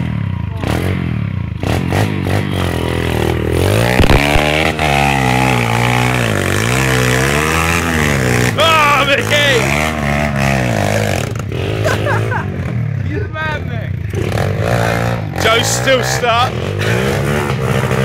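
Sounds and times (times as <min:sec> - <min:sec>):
motorbike engine revving: 0:00.0 - 0:18.0.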